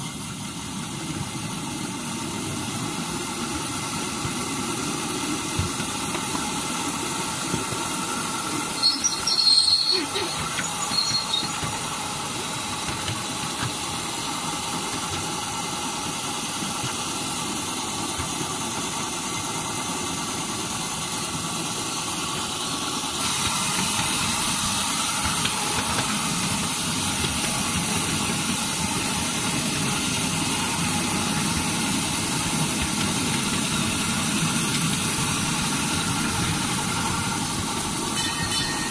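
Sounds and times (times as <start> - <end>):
miniature train running on track: 0.0 - 38.9
wheel squeal: 8.5 - 12.2, 35.2 - 38.9.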